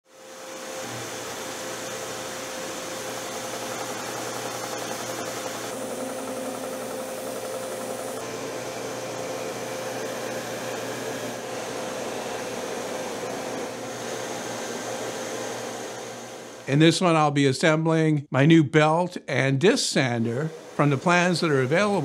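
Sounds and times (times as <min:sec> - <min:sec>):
electric motor humming: 0:00.3 - 0:16.7, 0:20.3 - 0:22.0
wood block sanded on disc: 0:20.5 - 0:22.0.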